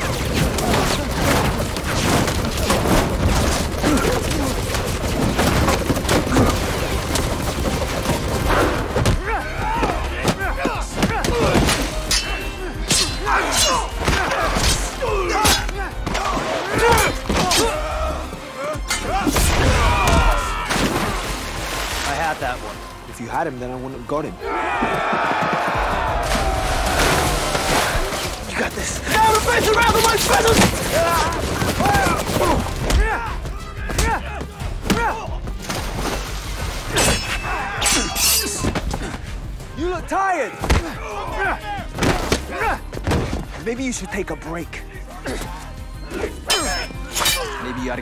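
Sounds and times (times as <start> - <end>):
film score music: 0.0 - 48.0
grunts and shouts of effort: 9.1 - 20.9, 28.5 - 35.5, 37.4 - 43.1, 44.8 - 48.0
punch and kick impacts: 41.9 - 43.5.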